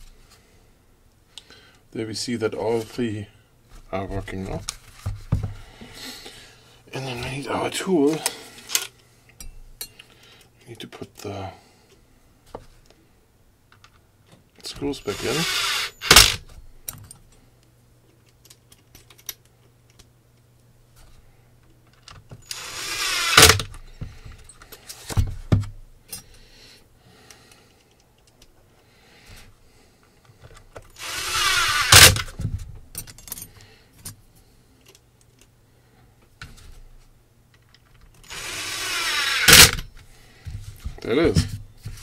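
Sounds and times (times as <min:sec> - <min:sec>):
drill driving screws: 0:15.0 - 0:16.4, 0:22.4 - 0:23.7, 0:30.9 - 0:32.3, 0:38.2 - 0:39.8
drill clutch click: 0:15.2 - 0:16.4, 0:22.5 - 0:23.7, 0:38.2 - 0:39.8.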